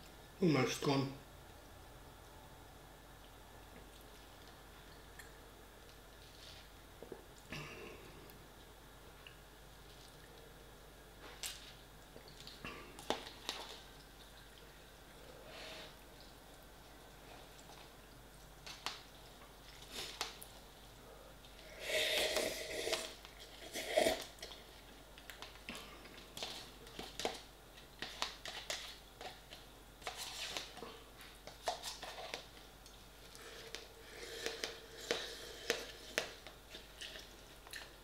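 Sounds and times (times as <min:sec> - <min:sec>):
slurping: 0:21.6 - 0:24.6, 0:33.2 - 0:37.9
chewing: 0:31.8 - 0:38.0.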